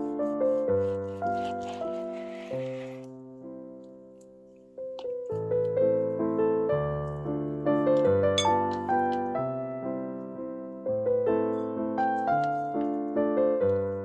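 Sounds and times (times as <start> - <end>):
gentle piano music: 0.0 - 14.0.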